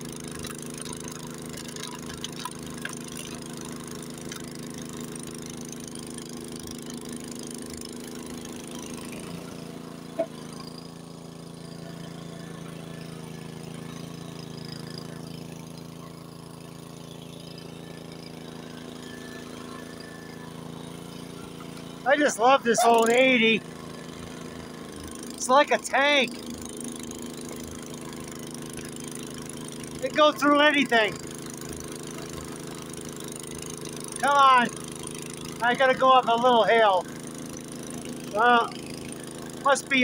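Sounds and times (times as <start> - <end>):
snowblower engine running: 0.0 - 40.0.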